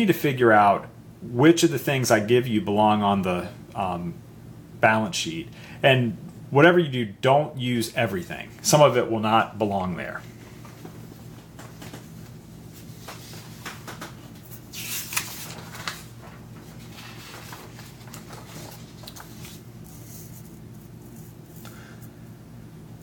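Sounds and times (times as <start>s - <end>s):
steady low hum: 0.0s - 23.0s
paper rustling on a table: 10.3s - 22.1s.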